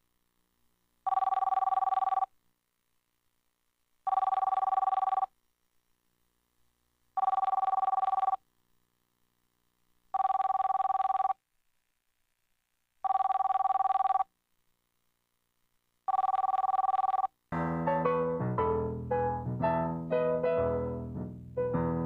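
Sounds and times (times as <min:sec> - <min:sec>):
telephone ringing: 0:01.1 - 0:02.3, 0:04.1 - 0:05.3, 0:07.2 - 0:08.4, 0:10.1 - 0:11.4, 0:13.0 - 0:14.3, 0:16.1 - 0:17.4.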